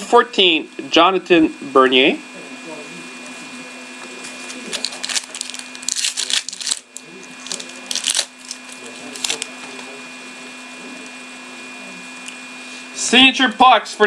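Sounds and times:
trading cards rustling and clicking: 0:04.2 - 0:09.5.

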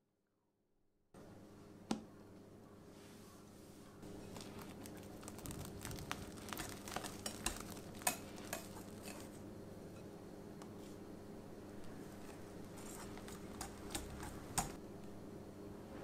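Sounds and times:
whisk tapping glass bowl: 0:05.3 - 0:09.3, 0:12.8 - 0:14.8.

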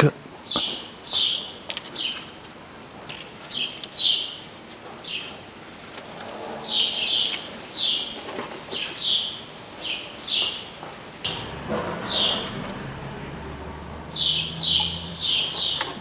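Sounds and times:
small bird chirping: 0:11.8 - 0:16.0.

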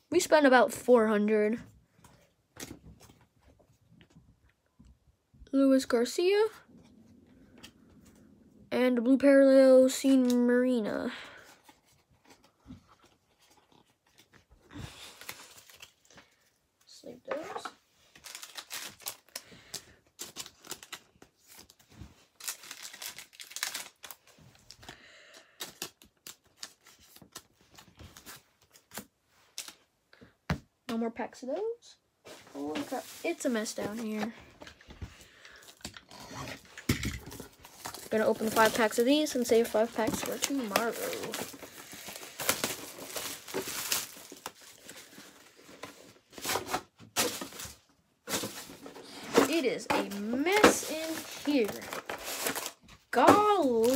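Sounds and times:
cards rustling: 0:17.0 - 0:29.8, 0:32.5 - 0:53.9
plastic packaging crinkling: 0:18.1 - 0:29.0, 0:35.4 - 0:53.9.

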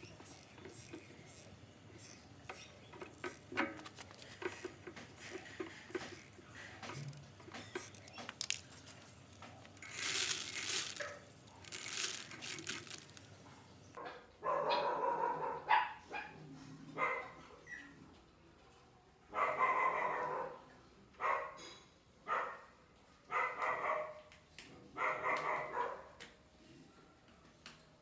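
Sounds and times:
scraping and rustling: 0:00.0 - 0:13.5
dog barking: 0:14.0 - 0:16.4, 0:17.0 - 0:17.6, 0:19.3 - 0:21.6, 0:22.2 - 0:24.3, 0:24.9 - 0:26.2.

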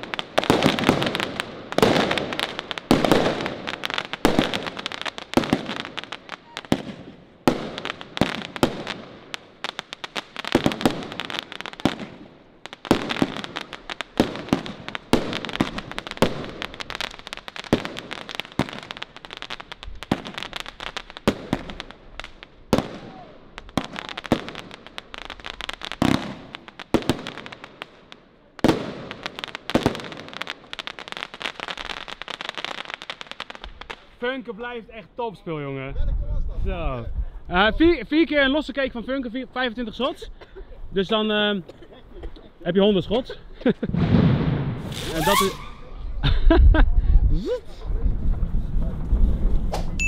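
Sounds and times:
fireworks rapid bangs and crackles: 0:00.0 - 0:34.3, 0:43.6 - 0:45.9, 0:47.8 - 0:50.0.

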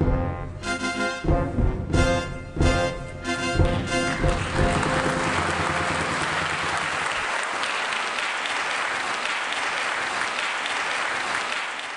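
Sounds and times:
audience applauding: 0:03.6 - 0:11.9.

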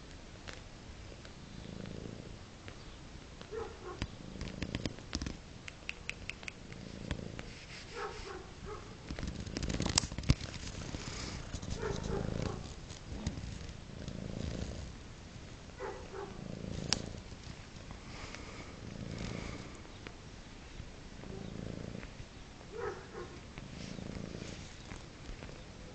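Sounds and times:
cat purring: 0:00.5 - 0:25.9
sharp clicks and taps: 0:03.4 - 0:07.2.

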